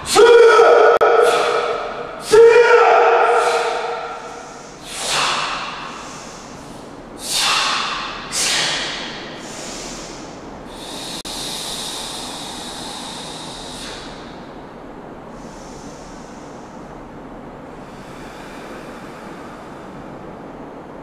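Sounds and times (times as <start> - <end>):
forceful hissing exhalations: 3.3 - 14.4, 15.3 - 16.9.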